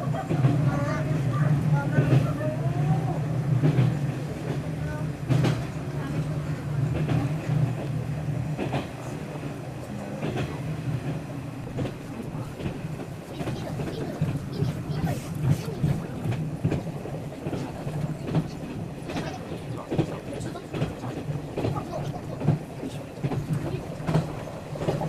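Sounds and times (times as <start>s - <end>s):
wheels clattering on rail joints: 0.0s - 25.0s.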